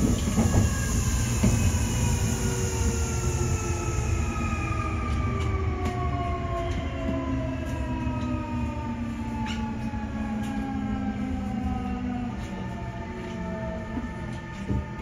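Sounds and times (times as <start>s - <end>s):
wheels rumbling on rail: 0.0s - 15.0s.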